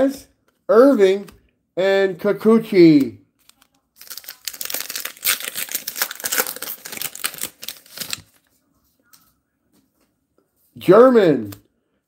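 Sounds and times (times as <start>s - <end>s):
card pack wrapper crinkling: 3.4s - 8.4s.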